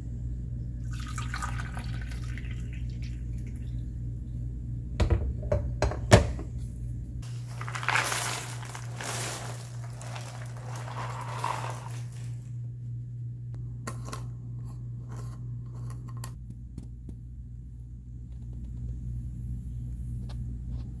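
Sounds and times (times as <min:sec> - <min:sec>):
low hum: 0:06.4 - 0:21.0
puzzle pieces pouring onto table: 0:07.2 - 0:12.5.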